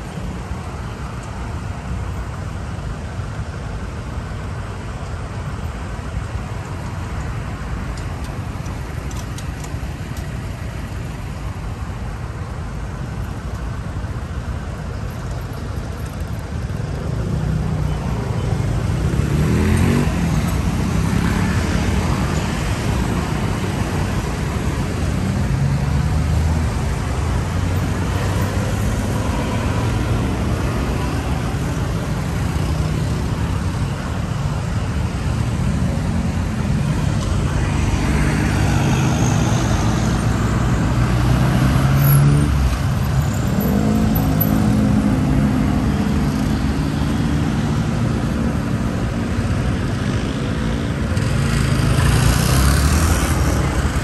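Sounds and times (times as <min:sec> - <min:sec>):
road traffic rumble: 0:00.0 - 0:54.0
motorbikes passing: 0:15.8 - 0:54.0.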